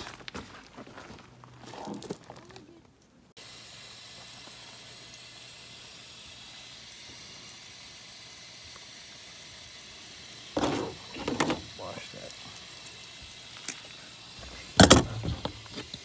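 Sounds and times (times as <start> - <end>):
steady background hiss: 3.4 - 16.0.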